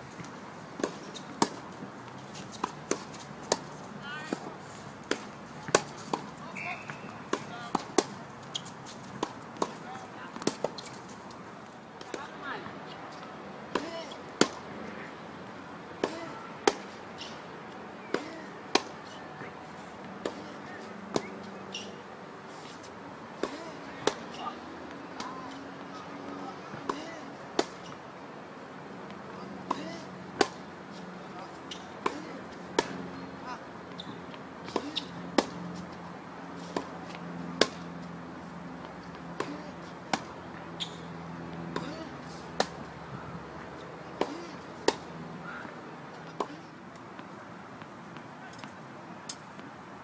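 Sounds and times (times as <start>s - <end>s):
tennis ball struck and bouncing: 0.2s - 11.4s, 13.7s - 14.7s, 16.0s - 17.4s, 18.0s - 22.0s, 23.4s - 24.4s, 26.7s - 28.0s, 29.0s - 30.7s, 31.6s - 33.0s, 33.9s - 35.9s, 36.6s - 38.0s, 38.8s - 42.9s, 44.0s - 49.7s.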